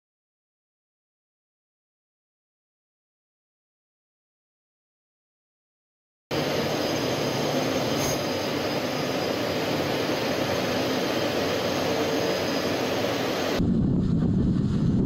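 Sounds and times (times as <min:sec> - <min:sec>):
faint high whine: 0:06.3 - 0:15.0
jet engine rush: 0:06.3 - 0:15.0.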